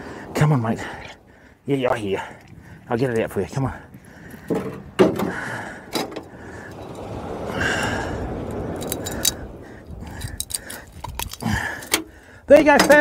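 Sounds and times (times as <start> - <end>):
rushing noise: 5.4 - 11.1.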